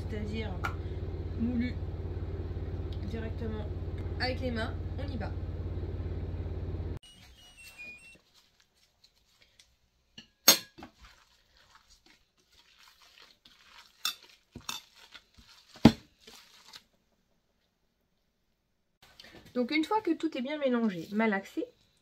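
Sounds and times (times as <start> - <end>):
soft squishing of meat mixture: 7.7 - 10.2, 10.8 - 17.0.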